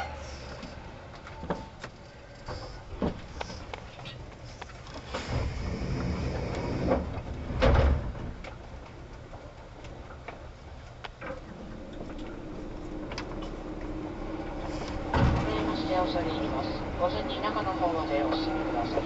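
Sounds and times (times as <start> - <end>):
train equipment low hum: 0.0 - 19.0
train doors hissing open: 1.6 - 3.7, 5.0 - 8.1, 14.4 - 16.0.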